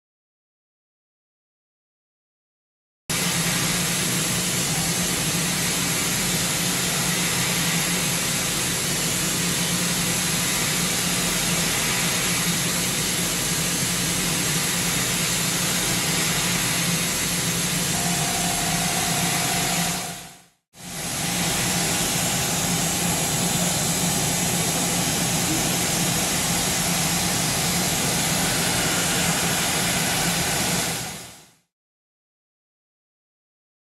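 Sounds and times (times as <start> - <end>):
milling machine whir and hiss: 3.1 - 31.5
thin steady tone: 17.9 - 20.2.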